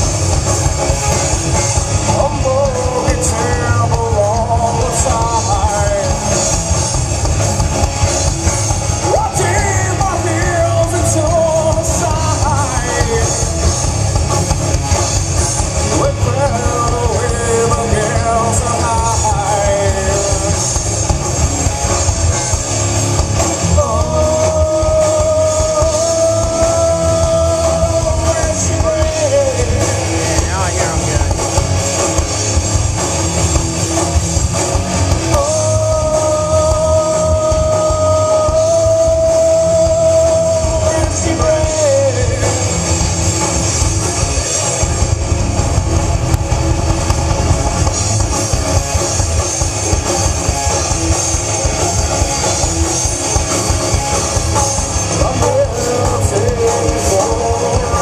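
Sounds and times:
live rock band playing: 0:00.0 - 0:58.0
man singing: 0:01.9 - 0:06.6, 0:08.9 - 0:13.8, 0:15.8 - 0:20.9, 0:23.6 - 0:31.4, 0:35.2 - 0:43.2, 0:54.5 - 0:58.0.

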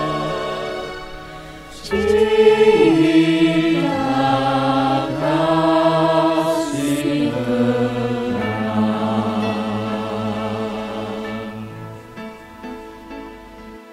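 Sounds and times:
mixed choir singing chords: 0:00.0 - 0:12.8.

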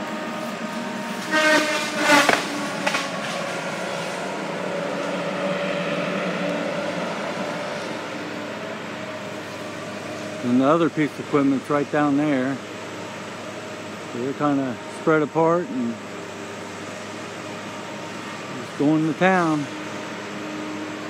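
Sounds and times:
pitched squeal: 0:00.0 - 0:10.6
distant heavy machinery engines: 0:00.0 - 0:21.0.

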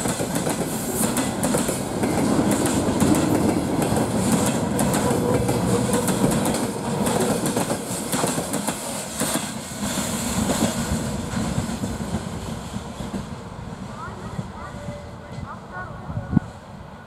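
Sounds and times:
train wheels clacking on rails: 0:00.0 - 0:13.5.

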